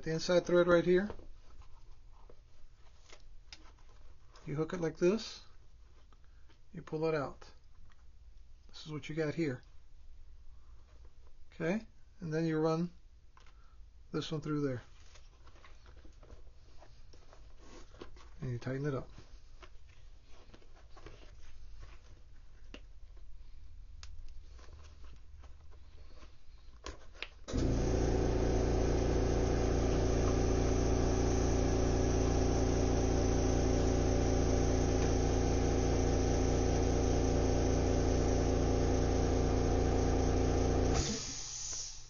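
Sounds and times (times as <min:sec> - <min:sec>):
electric machine running: 0:27.5 - 0:41.5.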